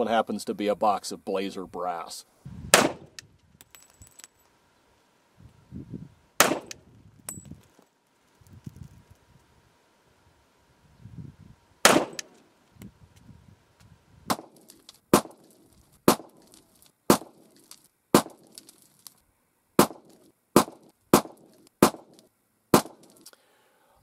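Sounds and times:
pistol shots with echoes: 2.7s - 3.1s, 6.4s - 6.8s, 11.8s - 12.4s.

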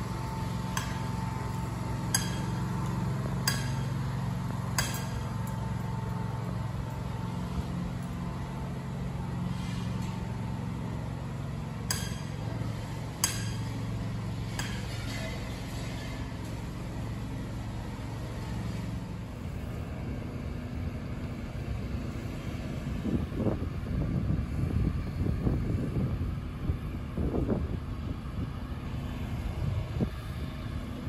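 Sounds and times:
low mechanical hum: 0.0s - 31.0s.

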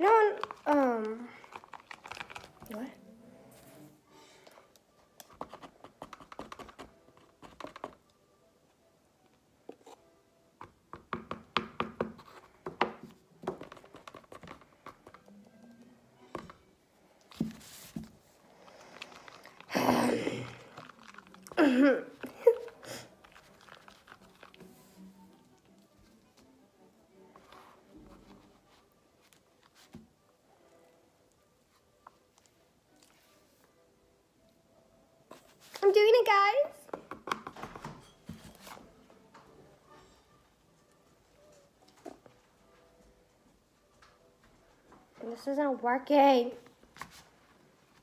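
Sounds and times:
hands rustling slime: 0.3s - 2.9s, 17.3s - 25.0s
utensil scraping slime in a bowl: 20.4s - 21.6s, 22.6s - 24.8s.

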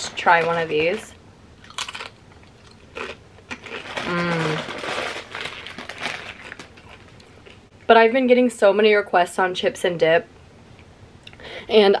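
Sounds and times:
crunching and chewing: 1.6s - 7.7s
person humming mm: 4.0s - 4.7s.

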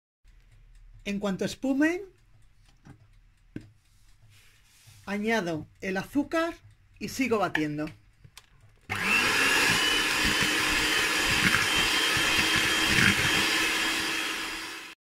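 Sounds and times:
electric hand mixer whipping: 8.9s - 15.0s.

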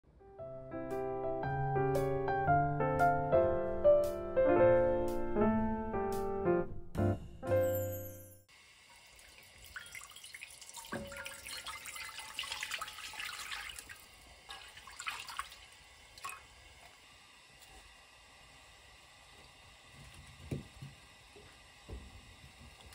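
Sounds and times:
piano music: 0.1s - 8.5s
water pouring into pan: 8.8s - 17.0s.

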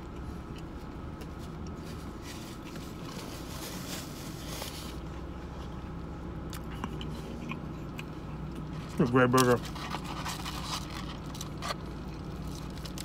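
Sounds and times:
steady low hum: 0.0s - 13.0s
person chewing burger: 6.4s - 13.0s.

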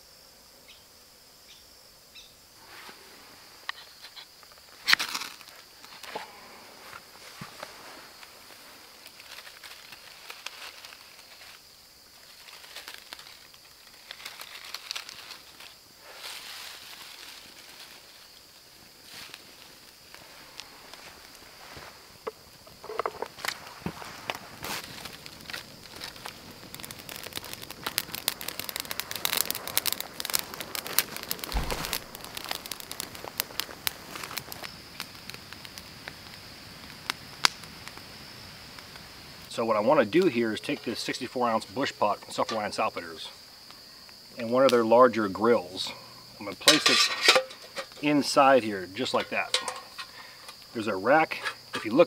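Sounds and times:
tinder crackling: 2.2s - 52.0s
rustling by hand: 12.2s - 18.3s, 22.8s - 34.6s
low thump: 31.5s - 32.2s.

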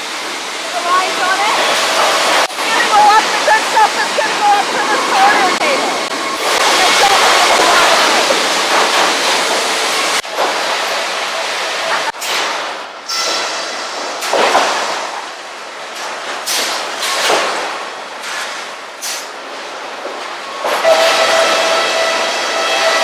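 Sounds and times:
sawmill conveyors running: 0.0s - 12.2s.

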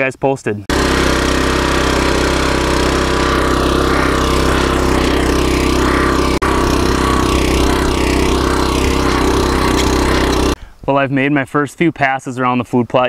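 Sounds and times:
rototiller engine running: 0.7s - 10.6s
tines churning through ground: 0.7s - 10.6s.

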